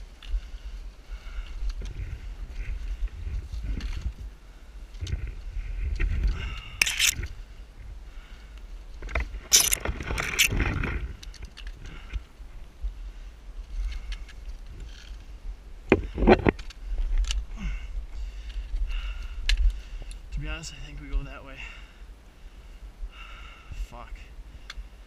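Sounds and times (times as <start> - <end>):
trekking pole and boots on rock: 0.0 - 7.4, 8.6 - 12.3, 13.6 - 20.2.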